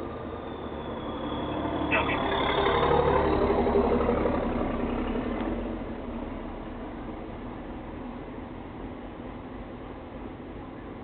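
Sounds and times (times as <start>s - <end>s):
vehicle driving past: 0.0s - 8.3s.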